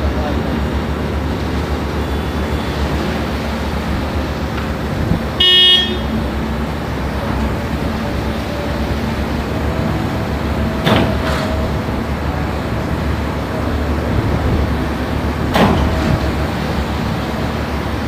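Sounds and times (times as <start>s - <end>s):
concrete pump low drone: 0.0s - 18.0s
short horn honk: 5.4s - 6.2s.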